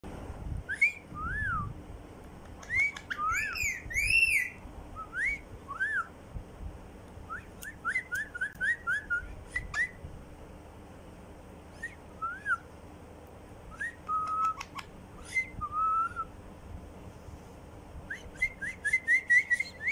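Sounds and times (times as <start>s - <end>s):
parakeet whistling: 2.6s - 6.1s, 7.3s - 10.0s, 13.8s - 16.3s, 18.1s - 19.9s.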